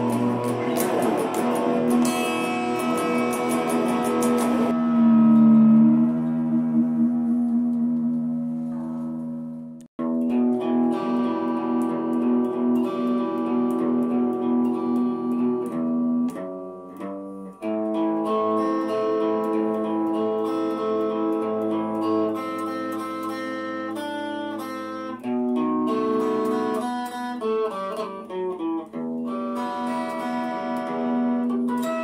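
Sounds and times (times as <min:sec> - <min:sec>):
slow guitar music: 0:00.0 - 0:32.0.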